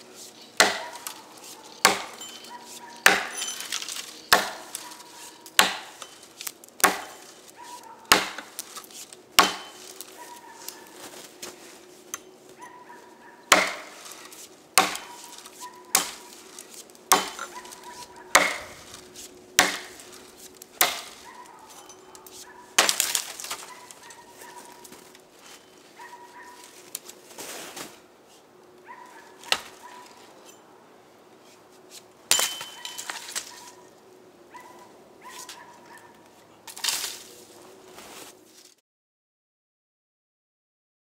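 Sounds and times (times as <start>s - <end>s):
axe chopping into log: 0.6s - 6.1s, 6.8s - 7.3s, 8.1s - 10.0s, 13.5s - 18.8s, 19.6s - 20.2s, 20.8s - 21.2s, 22.3s - 23.7s, 29.4s - 29.8s, 32.3s - 33.5s.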